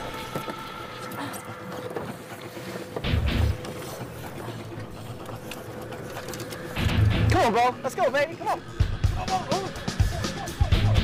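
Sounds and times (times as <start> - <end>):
water lapping against hull: 0.0 - 6.9.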